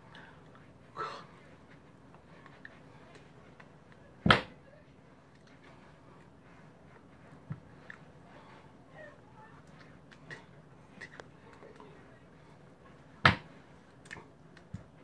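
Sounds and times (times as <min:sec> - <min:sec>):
faint clicks and rustling: 0:04.8 - 0:15.0.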